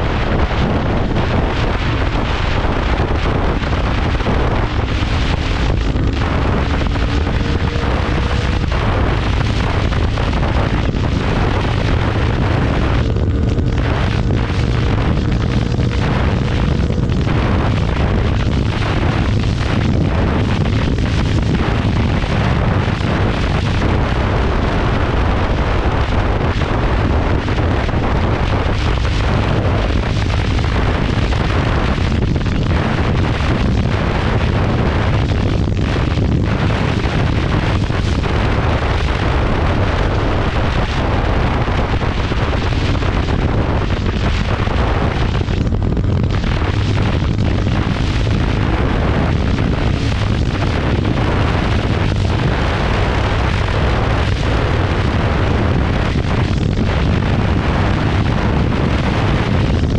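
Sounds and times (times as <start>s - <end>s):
motorcycle engine running: 0.0s - 42.0s, 42.6s - 57.5s
wind buffeting microphone: 0.0s - 59.9s.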